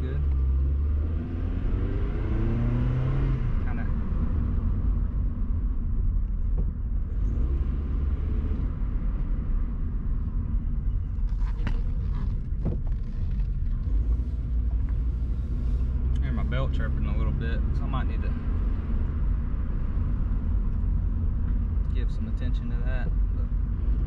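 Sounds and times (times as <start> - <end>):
car engine and tyre rumble: 0.0 - 24.0.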